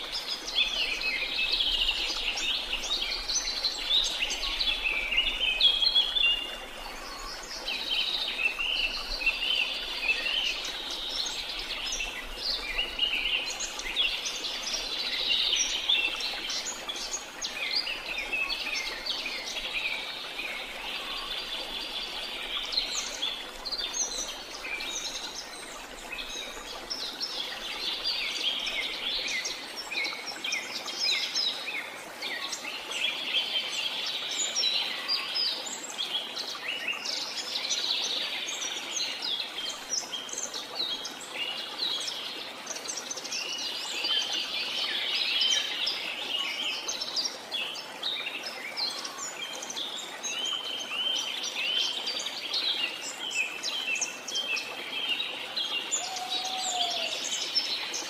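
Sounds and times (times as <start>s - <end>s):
songbirds chirping and singing: 44.9s - 58.0s.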